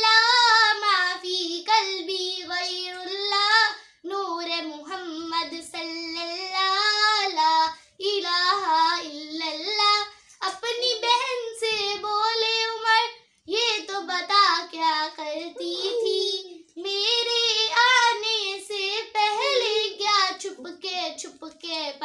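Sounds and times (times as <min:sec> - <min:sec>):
girl singing unaccompanied: 0:00.0 - 0:22.0.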